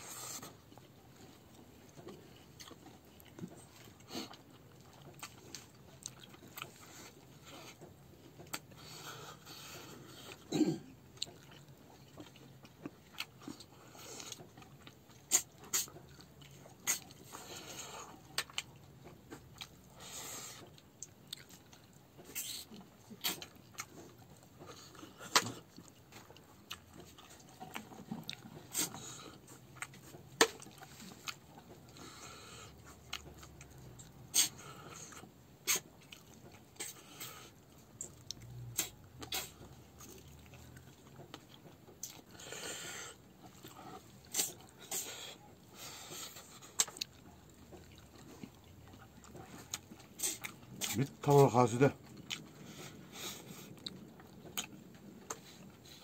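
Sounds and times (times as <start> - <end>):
man chewing food: 0.0 - 56.0
breathing: 8.7 - 10.4, 31.9 - 32.8, 42.3 - 44.0, 44.9 - 46.8, 52.5 - 53.8.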